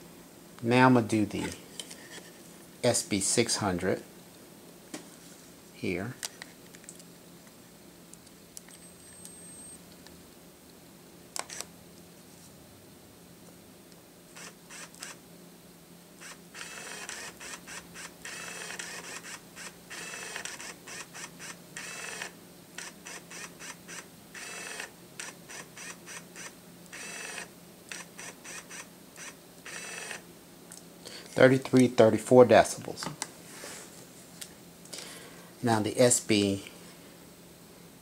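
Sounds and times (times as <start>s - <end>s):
flash zoom motor whirring: 14.3s - 15.2s, 16.2s - 30.2s.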